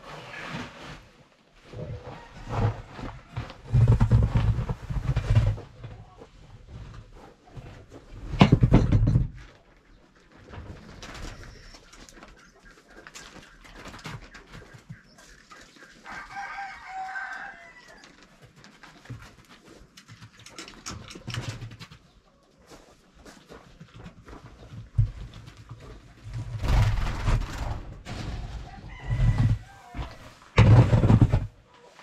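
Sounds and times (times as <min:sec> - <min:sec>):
rustling and knocks: 0:02.4 - 0:12.4, 0:23.2 - 0:31.7.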